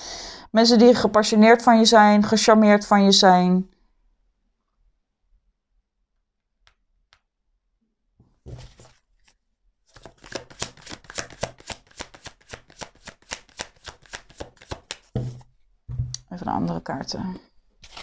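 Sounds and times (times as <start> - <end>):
cards being shuffled: 8.5 - 15.5
cards rustling: 8.5 - 15.5.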